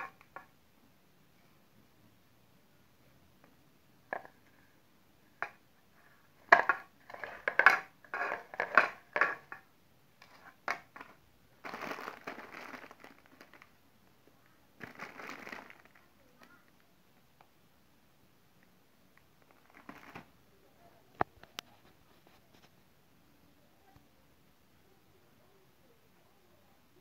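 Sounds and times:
plastic wrapper crinkling: 10.2 - 13.8, 14.8 - 16.8, 19.4 - 20.3.

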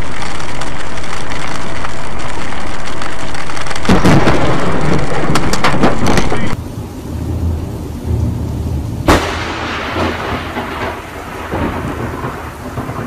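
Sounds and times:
heavy rain on a car: 0.0 - 13.0
thunderclap rumbling: 0.0 - 13.0.

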